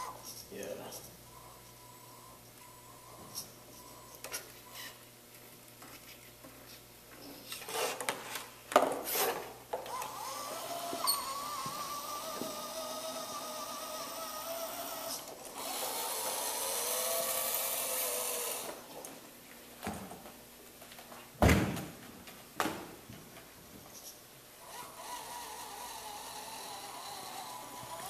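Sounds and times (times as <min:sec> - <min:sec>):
electric motors whining: 0:00.0 - 0:05.0, 0:09.1 - 0:19.0, 0:24.6 - 0:28.0.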